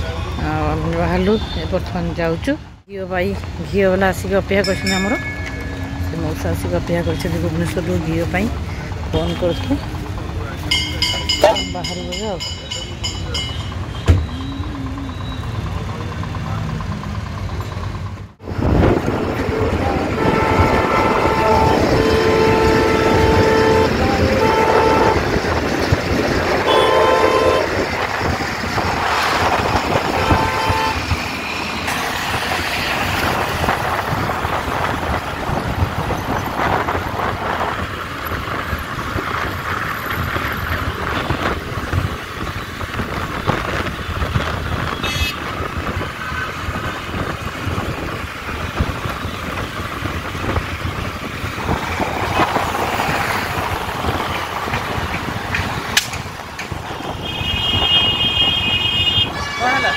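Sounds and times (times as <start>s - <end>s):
road traffic: 0.0s - 59.9s
wind rush on microphone: 18.4s - 31.4s, 32.3s - 59.5s
vehicle horn honking: 19.4s - 25.4s, 26.6s - 27.8s, 29.2s - 31.1s, 44.9s - 45.4s, 57.0s - 59.9s.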